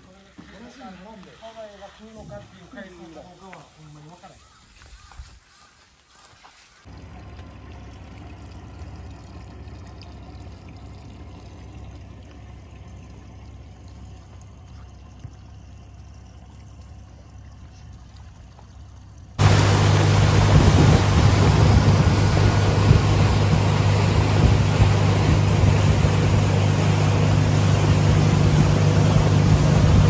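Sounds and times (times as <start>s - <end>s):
seawater splashing and lapping: 0.0s - 30.0s
low rumble: 19.4s - 30.0s.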